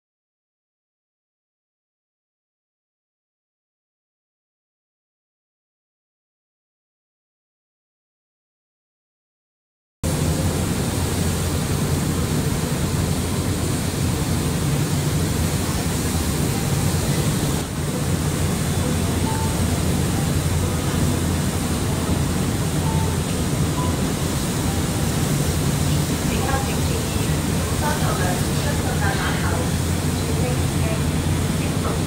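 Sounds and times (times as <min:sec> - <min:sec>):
ferry engines droning: 0:10.0 - 0:32.0
wind and water rushing: 0:10.0 - 0:32.0.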